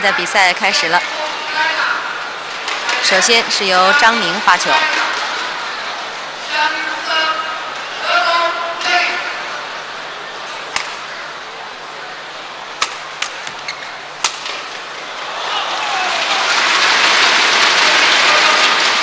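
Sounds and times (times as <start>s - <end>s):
crowd applause: 4.6s - 6.5s, 14.6s - 19.0s
racket hitting shuttlecock: 10.7s - 11.0s, 12.8s - 14.8s.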